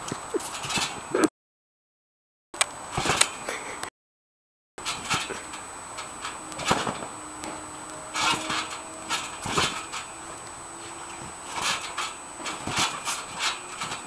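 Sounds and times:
dog landing on trampoline: 0.3 - 1.1, 2.9 - 3.4, 4.8 - 14.0.

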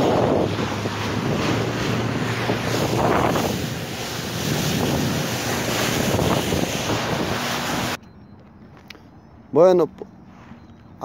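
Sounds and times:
rushing water: 0.0 - 8.0
wind buffeting microphone: 0.0 - 8.8
low steady engine hum: 0.0 - 11.0.

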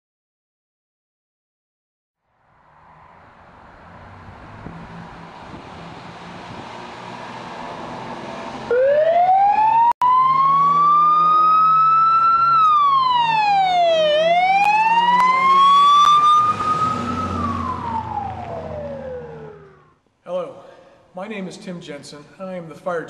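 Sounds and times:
truck engine rumbling: 2.5 - 9.6, 10.2 - 20.0
fire truck siren wailing: 4.0 - 20.0.

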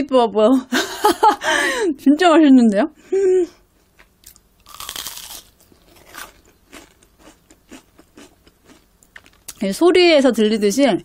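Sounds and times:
crunchy chewing: 3.8 - 9.6
crunchy bite: 4.0 - 9.6.

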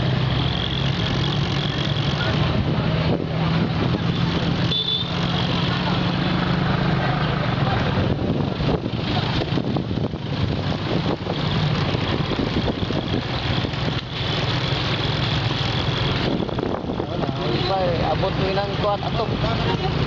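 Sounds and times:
road noise: 0.0 - 20.0
vehicle engine humming: 0.0 - 20.0.

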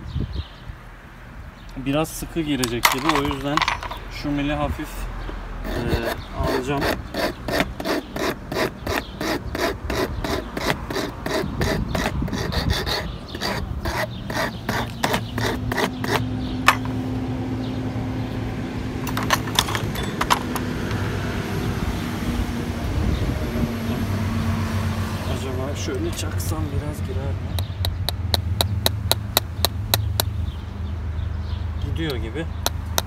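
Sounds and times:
hand file rasping on metal: 5.6 - 16.9.

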